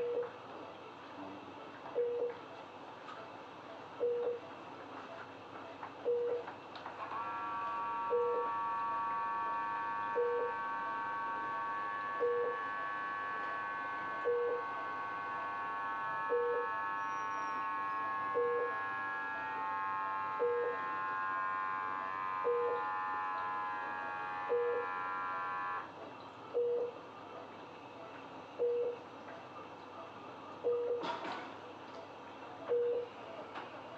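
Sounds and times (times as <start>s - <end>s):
monitor alarm beeping: 4.0s - 4.4s, 6.0s - 6.4s, 8.1s - 8.5s, 10.1s - 10.6s, 12.2s - 12.7s, 14.2s - 14.7s, 16.3s - 17.4s, 18.3s - 18.8s, 20.4s - 20.8s, 22.4s - 22.8s, 24.5s - 24.9s, 26.6s - 27.0s, 28.6s - 29.0s, 30.6s - 31.0s, 32.7s - 33.1s
high-pitched whine: 7.8s - 25.9s.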